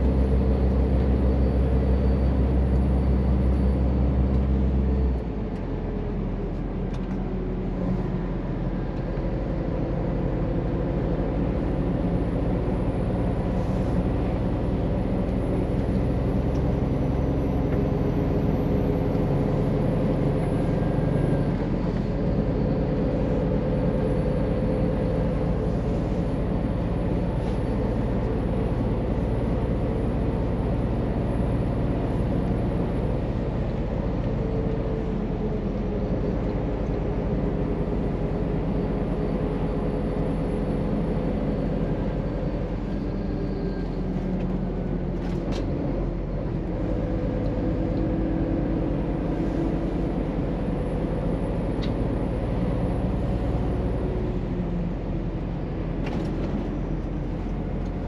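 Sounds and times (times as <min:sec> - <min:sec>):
road noise: 0:00.0 - 0:58.0
truck engine running: 0:00.0 - 0:58.0.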